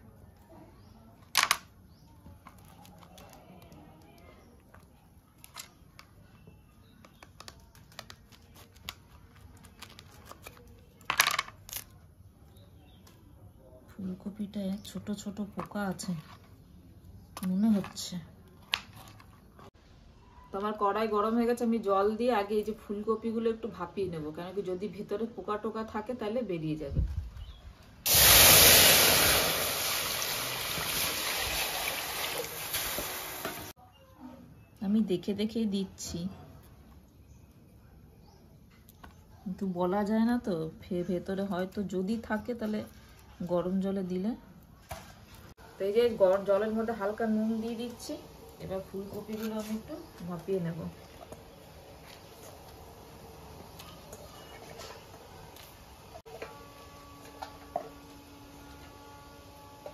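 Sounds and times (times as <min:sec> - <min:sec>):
water hissing on hot metal: 0:28.1 - 0:33.7
water pouring: 0:28.1 - 0:33.7.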